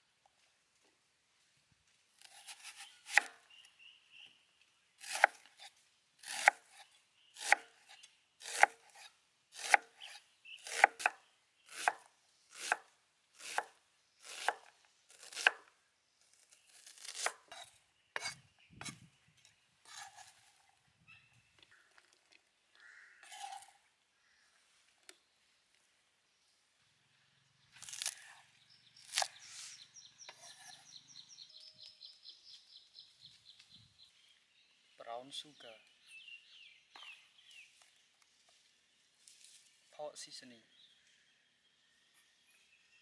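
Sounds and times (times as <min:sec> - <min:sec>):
knife chopping on wooden board: 0:07.4 - 0:07.7, 0:08.4 - 0:12.8, 0:13.4 - 0:15.7, 0:16.9 - 0:19.0.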